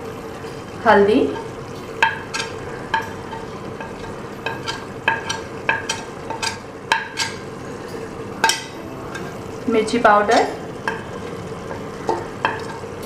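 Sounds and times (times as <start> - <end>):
meat sizzling in a pot: 0.0 - 13.0
utensils knocking on metal pot: 1.3 - 13.0.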